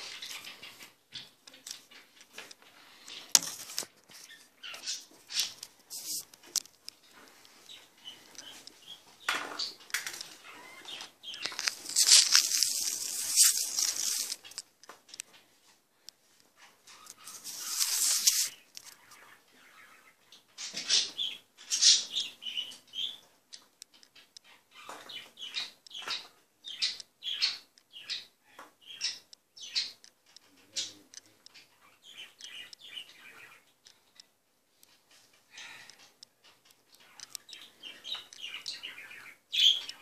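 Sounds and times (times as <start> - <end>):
phone microphone rustling: 5.6 - 9.0, 11.3 - 14.6, 16.9 - 18.6
short scratchy brushes: 5.9 - 6.3, 11.6 - 14.6, 17.0 - 18.6.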